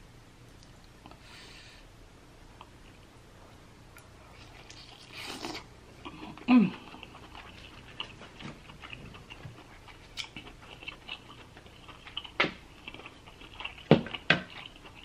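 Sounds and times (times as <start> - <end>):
close chewing: 4.0 - 15.0.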